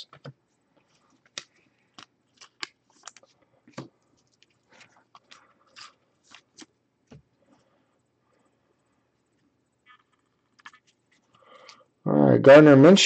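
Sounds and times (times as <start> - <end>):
plastic packaging crinkling: 0.9 - 6.8.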